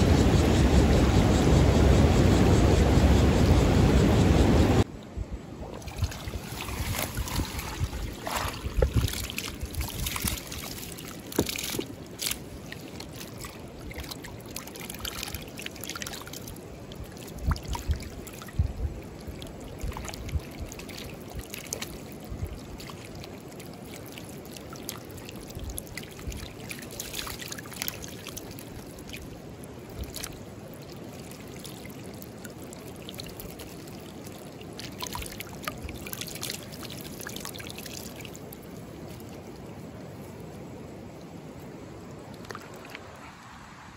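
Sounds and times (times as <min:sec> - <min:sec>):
creek water running: 0:04.8 - 0:43.9
net splashing in water: 0:05.7 - 0:16.6.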